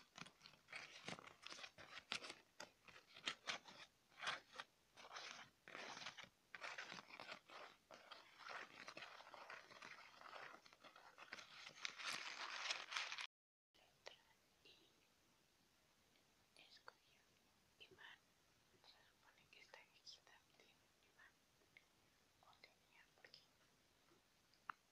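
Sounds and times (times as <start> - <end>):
paper crumpling: 0.0 - 13.3.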